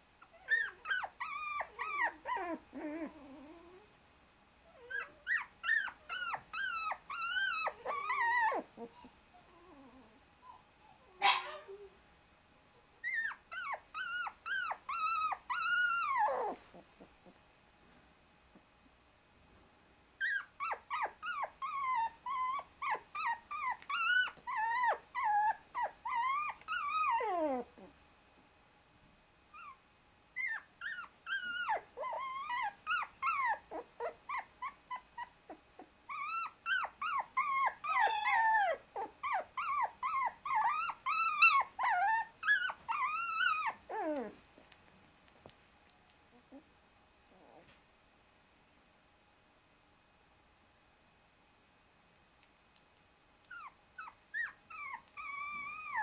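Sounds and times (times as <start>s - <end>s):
puppy squealing and whimpering: 0.2s - 3.9s, 4.7s - 11.9s, 13.0s - 17.1s, 20.2s - 27.9s, 30.4s - 44.4s, 53.4s - 56.0s.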